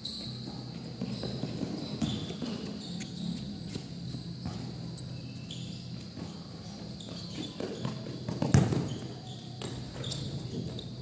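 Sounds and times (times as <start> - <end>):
steady low hum: 0.0 - 11.0
basketball bouncing on concrete: 7.6 - 9.8.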